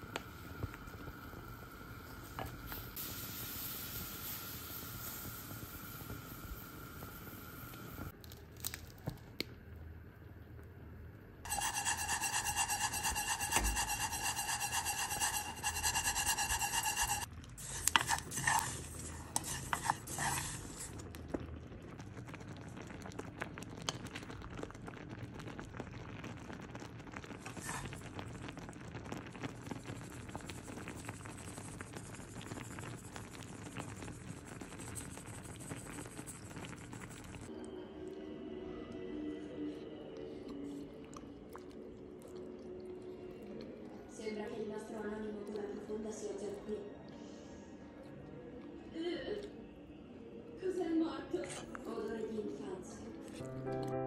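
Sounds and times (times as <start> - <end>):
seeds stirred in a dry pot: 11.5 - 21.1, 27.4 - 28.4.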